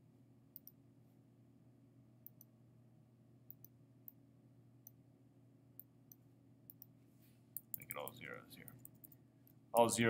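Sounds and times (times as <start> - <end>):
faint low hum: 0.0 - 10.0
computer mouse clicking: 0.6 - 0.8, 2.2 - 2.5, 3.5 - 4.2, 5.8 - 6.9, 7.6 - 9.2.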